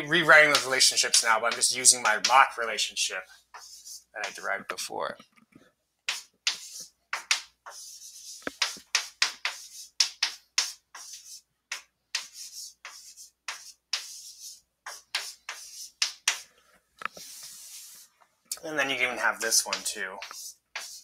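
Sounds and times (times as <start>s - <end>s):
chalk scratching on blackboard: 0.4s - 4.4s, 6.1s - 18.2s, 18.8s - 21.0s.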